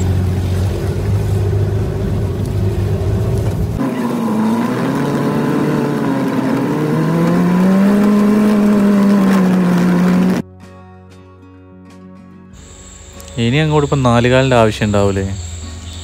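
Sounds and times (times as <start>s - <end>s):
jeep engine running: 0.0s - 10.4s.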